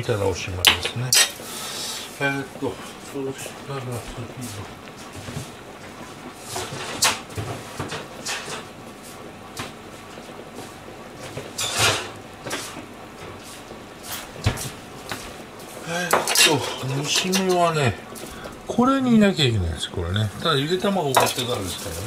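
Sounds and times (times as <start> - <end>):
pot boiling on stove: 0.0 - 22.0
kitchen knocks and clatters: 6.5 - 8.7, 11.2 - 12.8, 16.1 - 17.7, 21.1 - 22.0.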